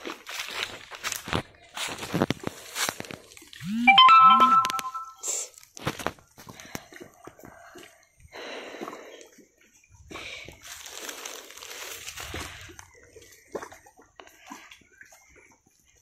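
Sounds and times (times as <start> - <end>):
water lapping against stones: 6.2 - 16.0.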